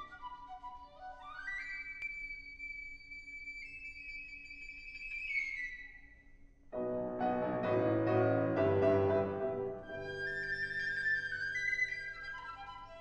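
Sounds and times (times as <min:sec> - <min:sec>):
piccolo high note: 0:06.8 - 0:11.4
piano chords: 0:06.8 - 0:12.0.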